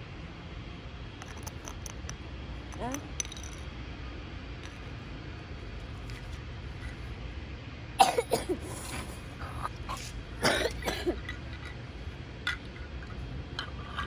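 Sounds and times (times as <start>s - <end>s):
steady low rumble: 0.0s - 14.0s
person coughing: 8.0s - 8.7s, 10.4s - 11.2s.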